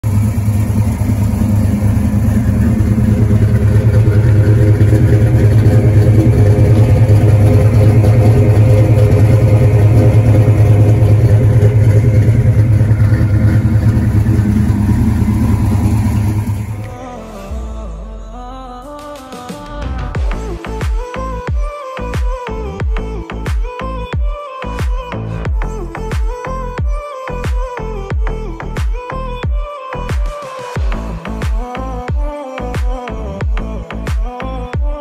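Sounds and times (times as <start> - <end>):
car engine idling loudly: 0.0 - 17.0.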